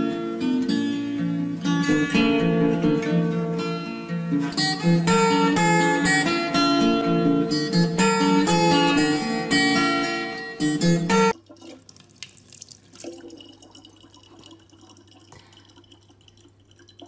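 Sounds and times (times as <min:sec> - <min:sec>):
plucked acoustic guitar music: 0:00.0 - 0:11.8
tap water trickling into bottle: 0:11.3 - 0:17.0.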